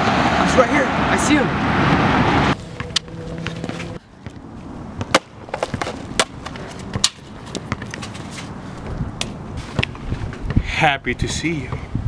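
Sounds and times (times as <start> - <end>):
footsteps on concrete: 2.6 - 10.0.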